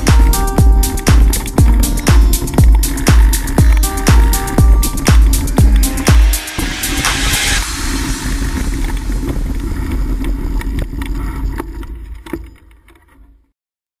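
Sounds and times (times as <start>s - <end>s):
bike rattling clicks and knocks: 0.0s - 5.5s, 8.9s - 13.4s
wind and ground rumble: 0.0s - 13.5s.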